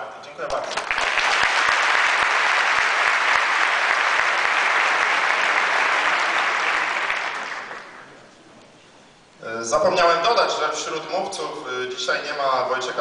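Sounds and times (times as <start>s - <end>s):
large crowd applauding: 0.5s - 8.2s.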